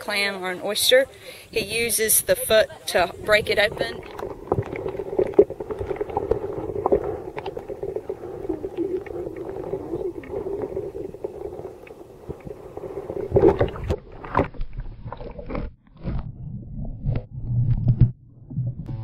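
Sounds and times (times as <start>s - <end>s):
water sloshing: 0.2s - 16.2s
muffled underwater hum: 3.1s - 14.4s
low thumps: 3.1s - 14.6s.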